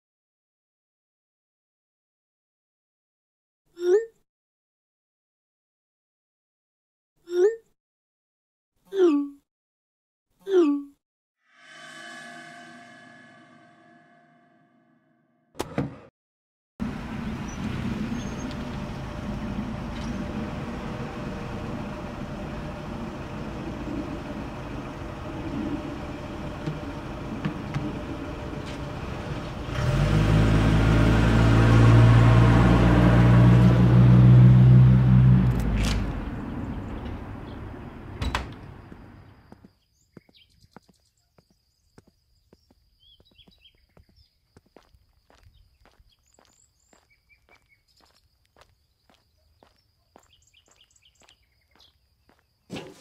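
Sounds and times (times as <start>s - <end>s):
mail truck engine running: 16.8s - 39.6s.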